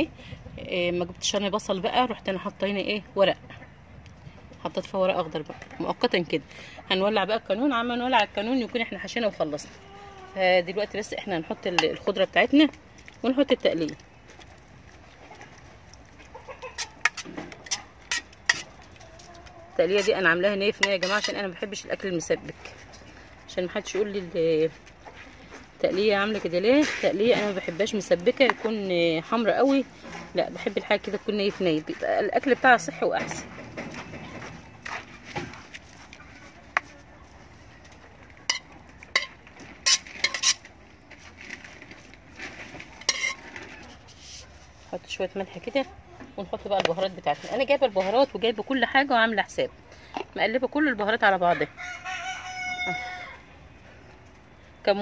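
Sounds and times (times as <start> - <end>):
chickens clucking: 9.4 - 12.0, 15.0 - 21.6.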